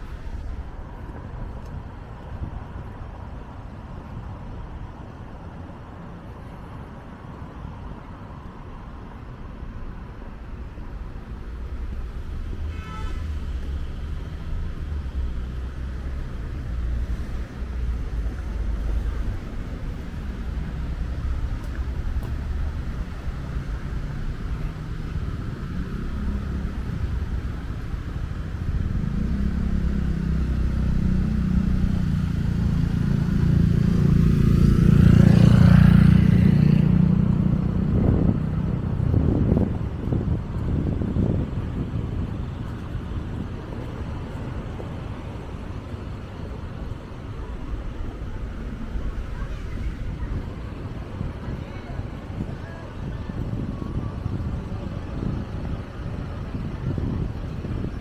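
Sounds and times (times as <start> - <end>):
street traffic: 0.0 - 58.0
vehicle passing close: 11.4 - 52.4.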